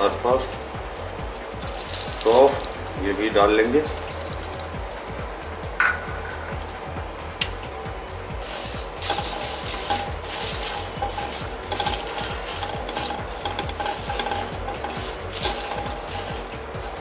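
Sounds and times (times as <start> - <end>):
seeds rattling in a pan: 1.4 - 4.8, 8.4 - 17.0
spatula scraping a pan: 8.4 - 17.0.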